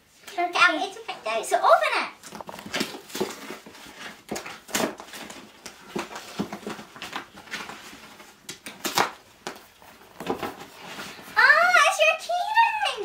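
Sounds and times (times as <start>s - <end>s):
cardboard rustling and tearing: 2.2s - 11.4s.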